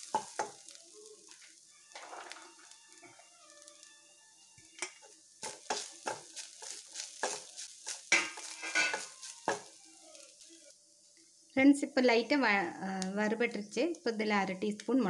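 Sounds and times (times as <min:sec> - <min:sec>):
wooden spatula scraping pan: 0:02.0 - 0:03.2, 0:05.4 - 0:09.8.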